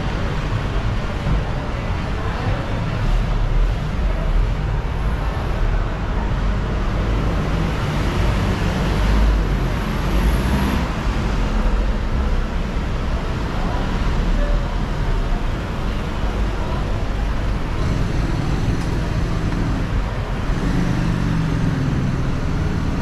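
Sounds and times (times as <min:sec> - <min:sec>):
street traffic rumble: 0:00.0 - 0:23.0.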